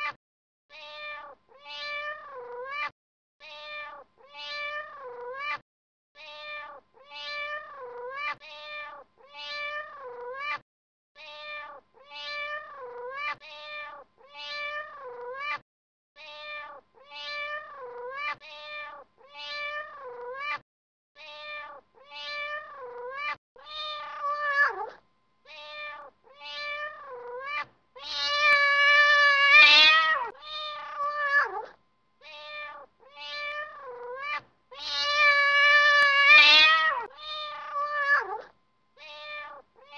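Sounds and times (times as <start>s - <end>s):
cat meowing: 0.0s - 5.6s, 6.2s - 10.6s, 11.2s - 15.6s, 16.2s - 20.6s, 21.2s - 39.9s.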